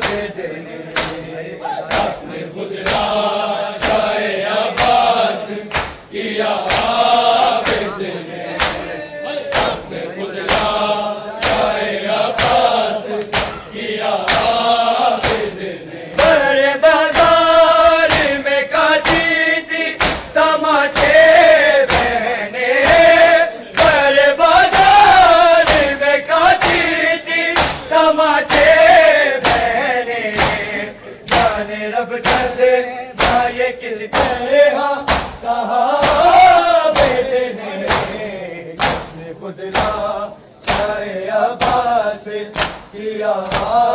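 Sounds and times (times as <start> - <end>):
men chanting in unison: 0.0 - 43.9
hands striking bare chests: 35.1 - 35.4.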